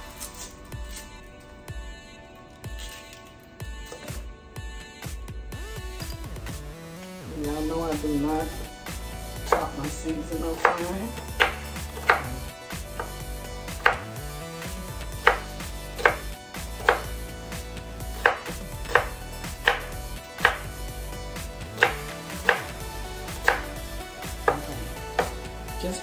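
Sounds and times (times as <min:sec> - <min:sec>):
knife chopping on wooden board: 0:09.4 - 0:09.9, 0:10.5 - 0:14.1, 0:15.2 - 0:17.2, 0:18.1 - 0:20.7, 0:21.8 - 0:25.5.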